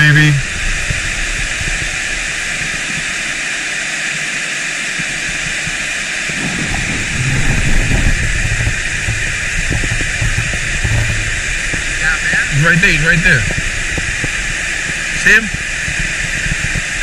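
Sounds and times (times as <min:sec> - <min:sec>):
water pouring over a dam: 0:00.0 - 0:17.0
low rumble: 0:05.3 - 0:17.0.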